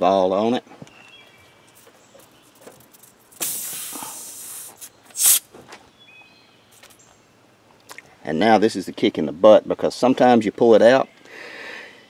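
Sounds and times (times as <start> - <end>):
air hissing from tire: 3.3 - 5.5.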